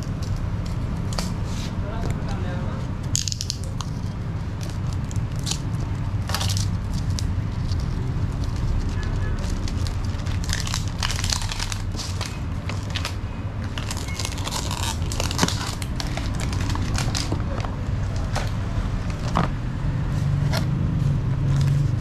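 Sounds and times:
plastic wrap crinkling and tearing: 0:03.1 - 0:19.5
cardboard packaging rustling: 0:03.2 - 0:19.6.

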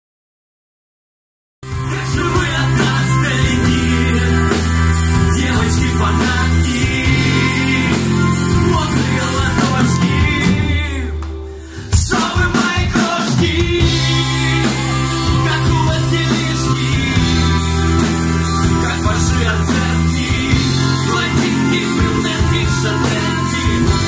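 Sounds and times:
drum kit: 0:01.6 - 0:24.0
person singing into a microphone: 0:01.7 - 0:24.0.

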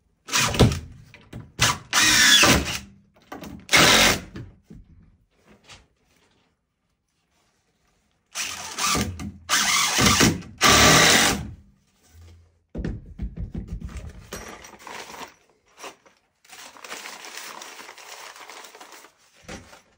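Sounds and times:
cordless drill bursts: 0:01.9 - 0:02.8, 0:03.7 - 0:04.2, 0:08.4 - 0:11.4
handling noises: 0:13.7 - 0:19.9.

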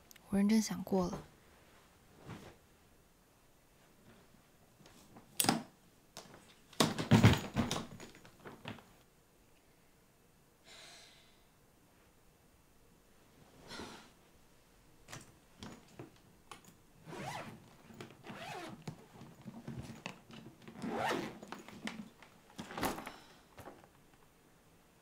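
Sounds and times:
handling clicks and knocks: 0:05.4 - 0:08.9
suitcase zipper pulled: 0:17.0 - 0:17.6, 0:18.2 - 0:18.8, 0:20.8 - 0:21.5.

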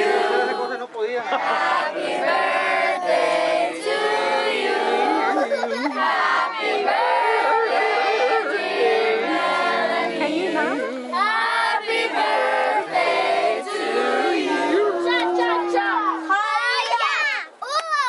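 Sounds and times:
crowd singing in unison: 0:00.0 - 0:16.3.

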